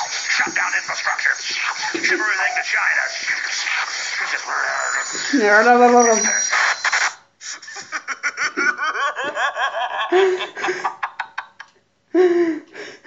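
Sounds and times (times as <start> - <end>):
person laughing hard: 7.4 - 11.6.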